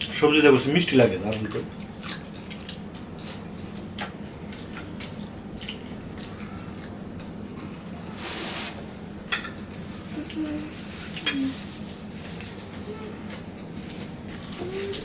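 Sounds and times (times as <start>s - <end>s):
chewing: 1.3s - 7.8s.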